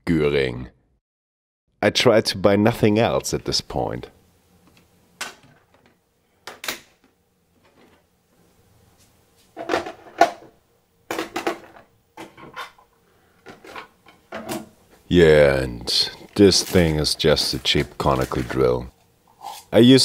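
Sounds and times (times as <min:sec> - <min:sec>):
plastic cases knocking and clattering: 0:11.1 - 0:12.6.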